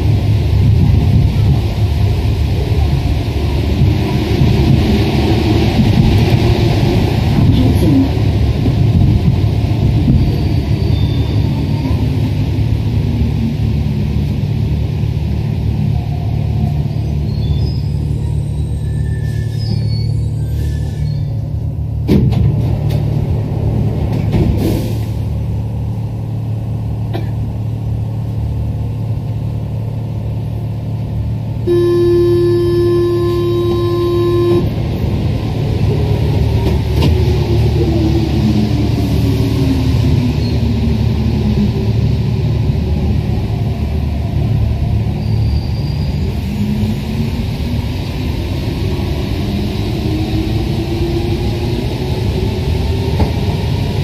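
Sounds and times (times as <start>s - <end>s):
train rumbling through tunnel: 0.0s - 54.0s
train horn steady tone: 31.6s - 34.9s.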